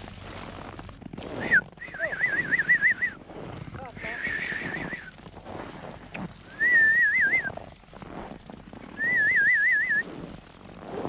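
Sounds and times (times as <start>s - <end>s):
person whistling warbling trills: 1.4s - 3.2s, 4.0s - 5.1s, 6.5s - 7.6s, 9.0s - 10.1s.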